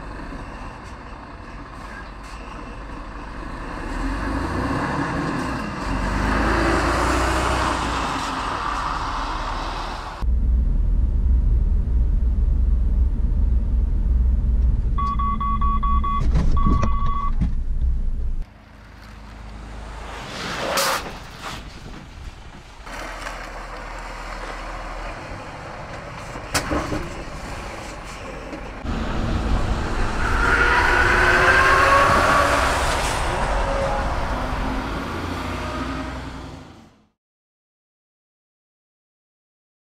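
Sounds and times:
truck cab engine rumble: 10.2 - 19.5
warning chime beeping: 15.0 - 17.4.

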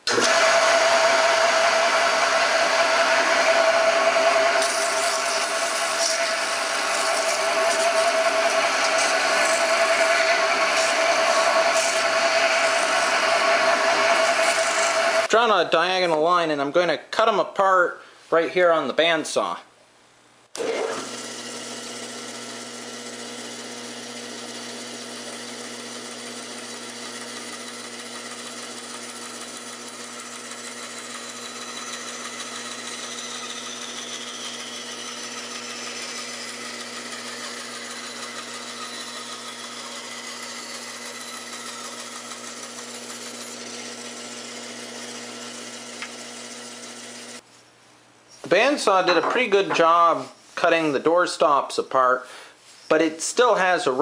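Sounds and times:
bandsaw cutting wood: 0.0 - 15.3, 20.6 - 47.4.

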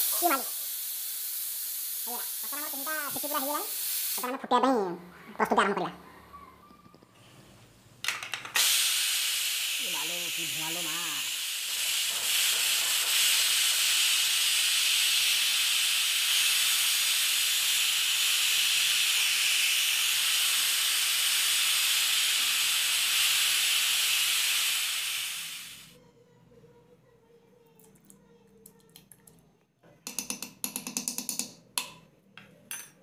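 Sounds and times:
pressure cooker steam hiss: 0.0 - 4.4, 8.5 - 26.0.

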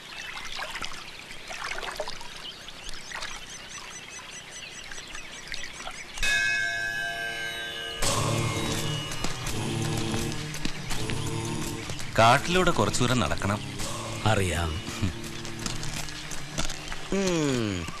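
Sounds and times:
birds chirping: 0.0 - 18.0
lower ringing tone: 6.2 - 9.4
bell ringing: 6.2 - 9.5.

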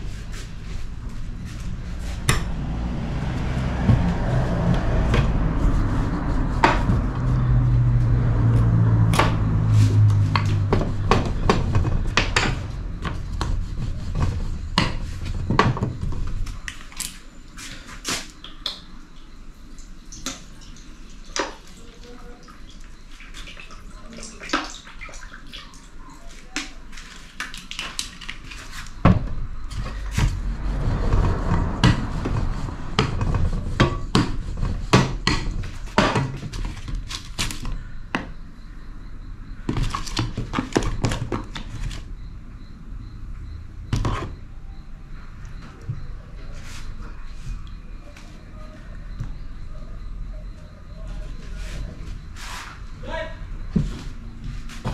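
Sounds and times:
rolling pin rolling dough on glass: 9.1 - 16.6, 28.6 - 37.0.

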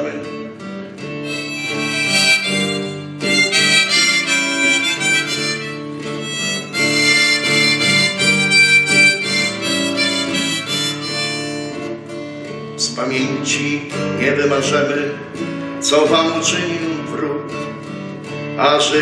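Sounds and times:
strummed acoustic guitar: 0.0 - 19.0
harmonica playing a melody: 1.2 - 12.5.

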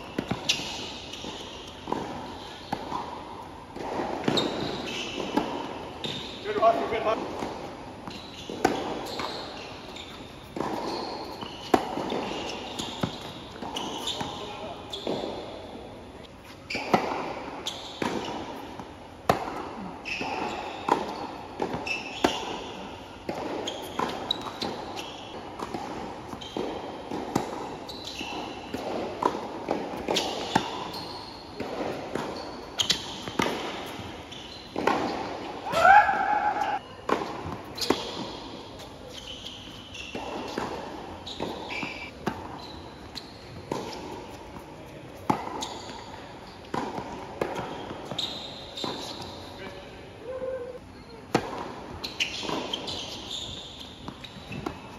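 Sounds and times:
shoe squeaks on court: 0.0 - 3.1, 4.2 - 7.2, 8.0 - 15.5, 16.2 - 17.0, 17.6 - 18.7, 19.8 - 22.8, 23.6 - 25.7, 26.3 - 26.8, 27.4 - 29.3, 30.1 - 35.3, 36.4 - 46.8, 47.5 - 49.8, 51.9 - 54.9
tennis ball bouncing: 0.0 - 15.7, 16.4 - 38.9, 40.1 - 49.4, 51.3 - 54.9
racket striking tennis ball: 0.1 - 7.7, 10.5 - 14.4, 16.8 - 25.0, 25.6 - 31.0, 31.6 - 38.9, 40.1 - 42.6, 43.6 - 48.2, 51.3 - 53.1.

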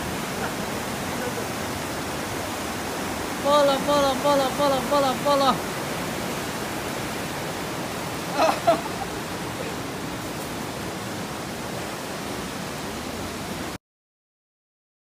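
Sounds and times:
river water rushing: 0.0 - 13.8
person shouting: 3.5 - 5.6.

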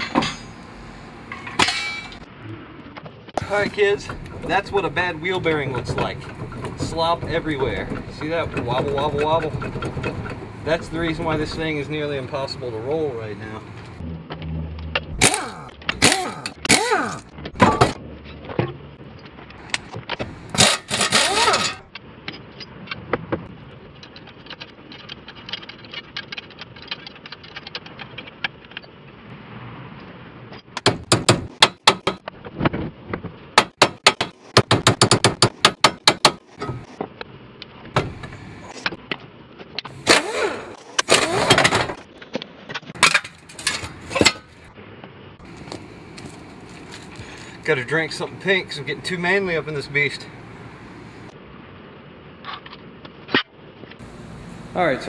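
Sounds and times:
metal clanks and scrapes: 0.0 - 2.3, 3.3 - 12.6, 19.5 - 23.1, 35.4 - 37.0, 39.8 - 44.7
air impact wrench bursts: 15.2 - 17.3, 20.5 - 21.8, 39.9 - 42.0
sharp knocks: 30.8 - 32.3, 33.6 - 36.9.

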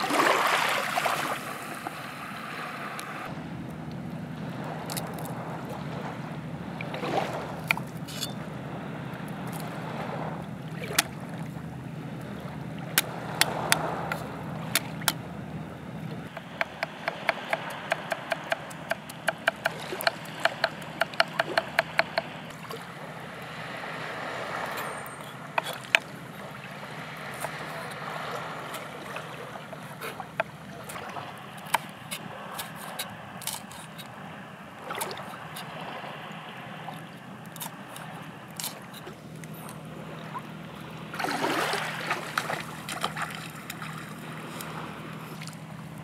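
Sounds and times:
knife chopping on wooden board: 16.3 - 22.3.

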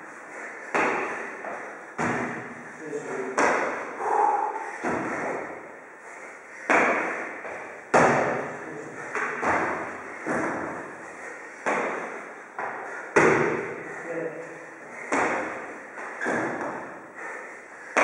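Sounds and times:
feet landing on wooden box: 2.0 - 2.6, 6.7 - 8.4, 9.2 - 10.8, 12.6 - 13.7.

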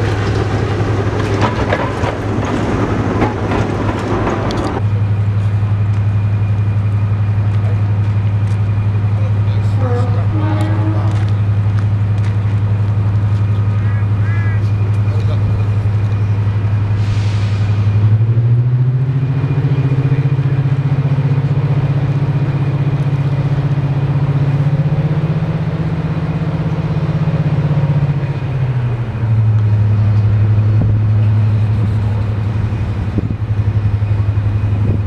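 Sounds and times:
diesel locomotive engine drone: 0.0 - 35.0.

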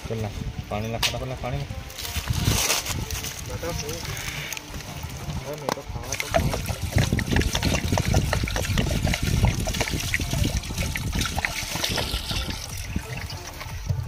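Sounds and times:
hands sloshing and rubbing meat: 6.0 - 13.7
water pouring into a metal pot: 6.0 - 14.0.

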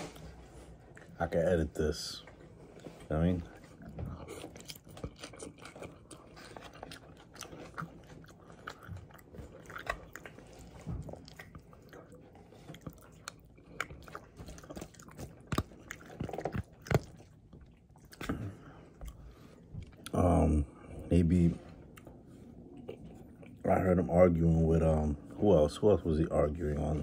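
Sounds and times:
person chewing salad: 2.2 - 20.9, 21.8 - 23.9.

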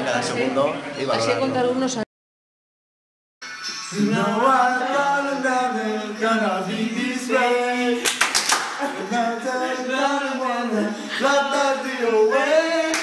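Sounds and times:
group of people singing: 3.8 - 13.0
hands clapping: 8.0 - 8.8.

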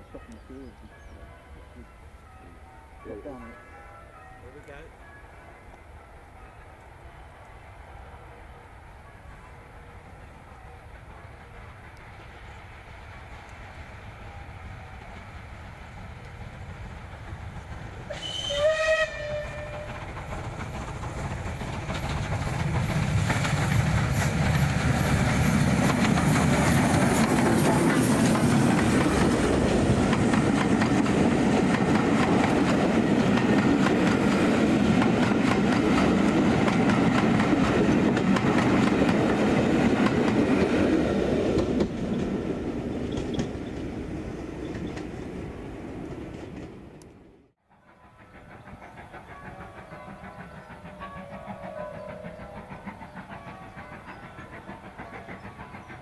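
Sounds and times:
steam locomotive rumble: 9.6 - 47.1, 47.7 - 56.0
wheels clacking over rail joints: 17.0 - 44.0
steam whistle blast: 18.1 - 19.9.

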